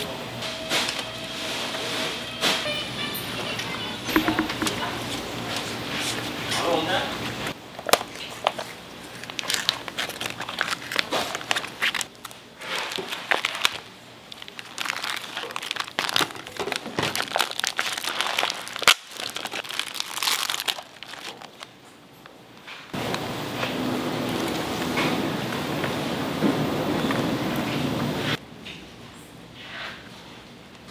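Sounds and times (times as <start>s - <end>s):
plastic packaging crinkling: 7.8s - 21.8s.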